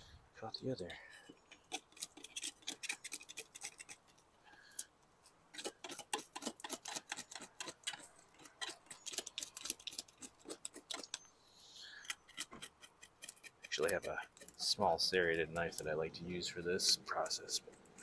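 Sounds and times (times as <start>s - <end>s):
knife scraping fish scales: 1.3s - 4.9s, 5.5s - 11.2s, 12.0s - 14.7s.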